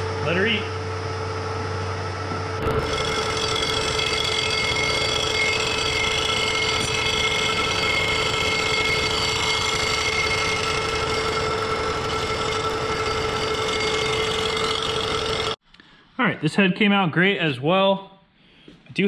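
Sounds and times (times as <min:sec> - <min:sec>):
milling machine whine: 0:00.9 - 0:15.6.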